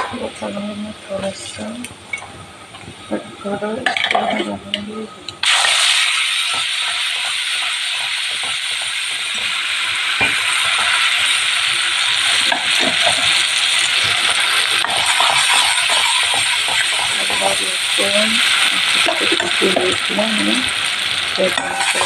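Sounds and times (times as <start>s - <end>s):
paste sizzling in hot oil: 5.4s - 22.0s
spatula scraping a pan: 14.2s - 17.7s, 21.5s - 22.0s.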